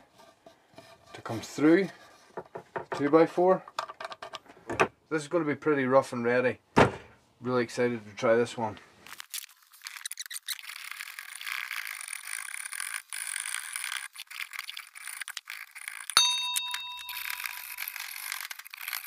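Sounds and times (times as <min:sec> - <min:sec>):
bell-like ding: 0:16.2 - 0:18.0.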